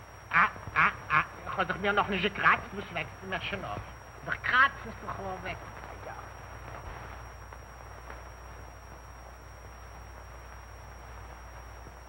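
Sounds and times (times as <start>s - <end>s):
film soundtrack hiss and hum: 0.0s - 12.0s
thin high whine: 0.0s - 12.0s.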